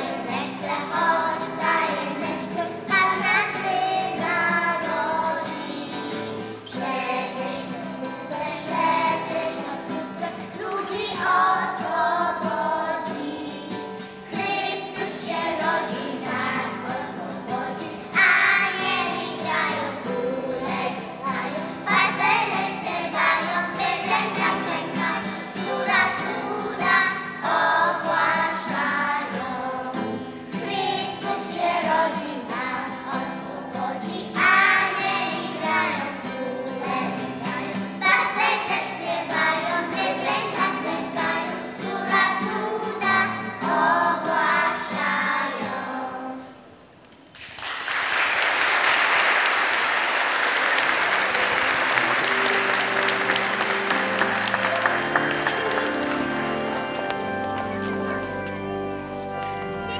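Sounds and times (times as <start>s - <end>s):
children singing a carol: 0.0s - 46.6s
applause: 47.4s - 58.3s.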